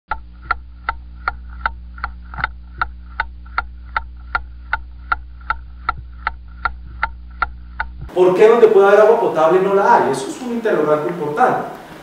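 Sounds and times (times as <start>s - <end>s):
steady ticking: 0.1s - 8.2s
low steady hum: 0.1s - 12.0s.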